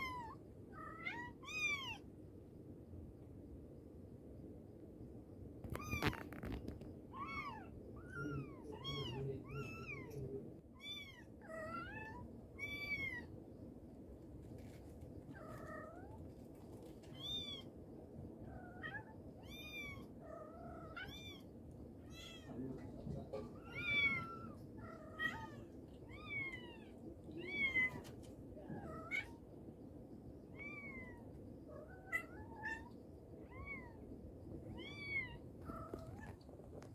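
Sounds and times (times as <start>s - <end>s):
cat and kittens meowing: 0.0s - 2.1s, 5.6s - 13.4s, 14.5s - 17.8s, 18.4s - 29.6s, 30.4s - 36.9s
sharp rustle or knock: 5.6s - 6.9s.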